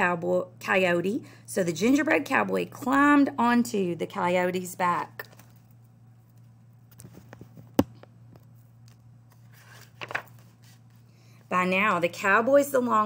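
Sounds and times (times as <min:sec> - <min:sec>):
book pages turning: 0:05.2 - 0:11.0.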